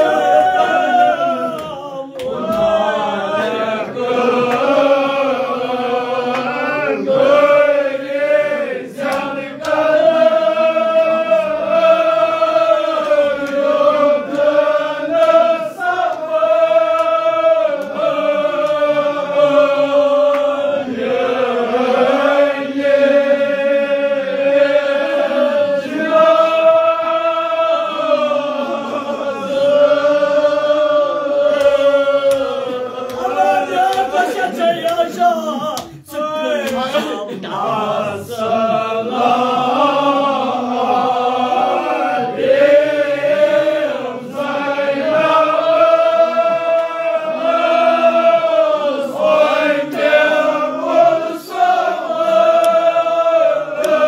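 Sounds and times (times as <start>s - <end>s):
men chanting: 0.0s - 54.0s.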